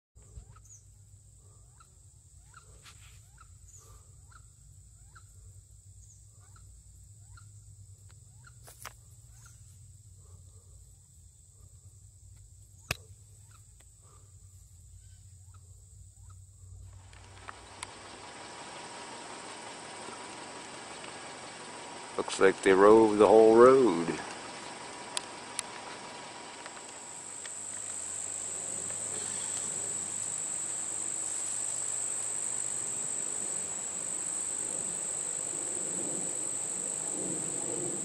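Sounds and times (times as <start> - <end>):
insect drone: 0.2 - 38.0
loud hiss: 16.9 - 38.0
sharp clicks: 24.0 - 38.0.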